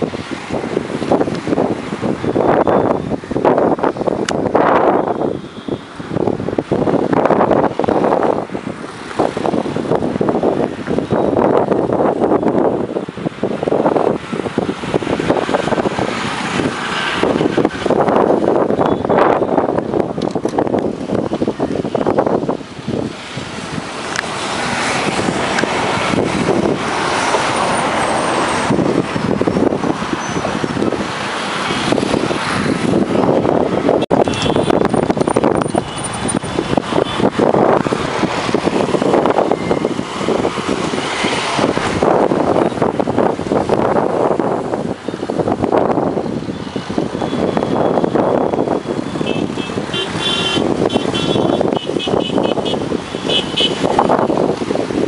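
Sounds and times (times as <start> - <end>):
road traffic rushing: 0.0 - 55.0
wind on microphone: 0.0 - 55.0
car horn short beeps: 34.1 - 34.8, 49.3 - 53.8.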